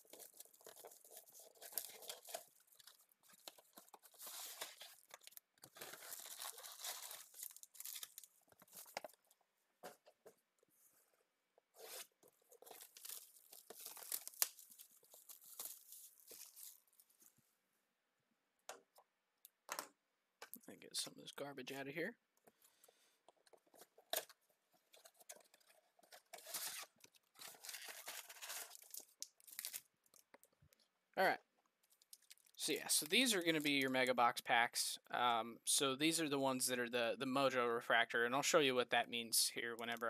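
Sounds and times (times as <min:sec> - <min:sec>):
foil packs crinkling: 0:00.0 - 0:09.2, 0:12.6 - 0:17.1, 0:24.9 - 0:30.2.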